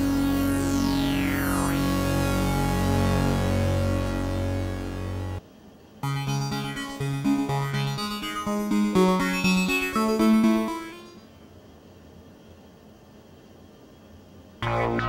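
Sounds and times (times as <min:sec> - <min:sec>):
low sustained synthesizer: 0:00.0 - 0:05.4, 0:06.0 - 0:11.3
synthesizer melody: 0:00.0 - 0:05.4, 0:06.0 - 0:11.2.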